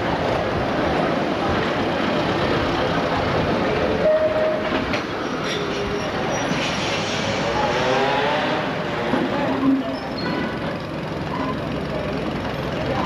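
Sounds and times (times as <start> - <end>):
tram rattling rumble: 0.0 - 13.0
tram wheels squealing: 3.8 - 8.4, 9.3 - 13.0.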